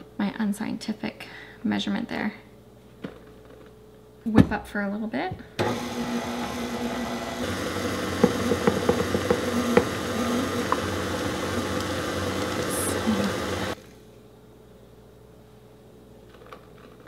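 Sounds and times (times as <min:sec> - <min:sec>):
stand mixer running: 0:05.6 - 0:13.8.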